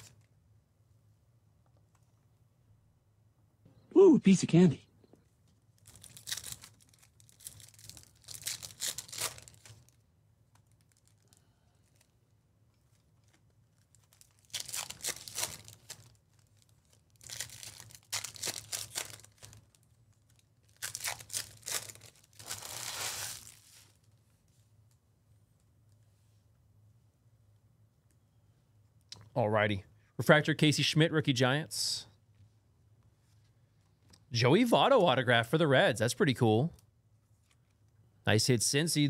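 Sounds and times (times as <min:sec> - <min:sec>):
foil wrappers tearing and crinkling: 0:05.7 - 0:10.0, 0:10.6 - 0:12.1, 0:13.2 - 0:24.0.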